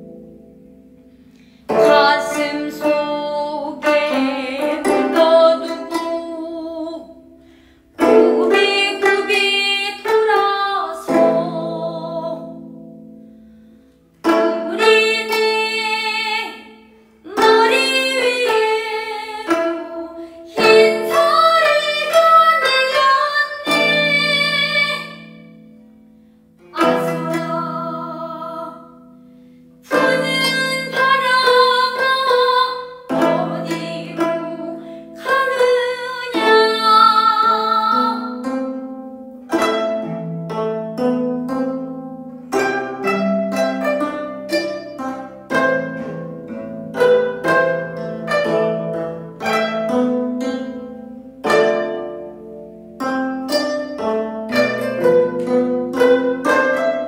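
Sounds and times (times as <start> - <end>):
plucked zithers: 0.0 - 57.0
woman singing: 1.7 - 7.2, 8.0 - 12.6, 14.4 - 25.4, 26.7 - 28.9, 29.9 - 38.5.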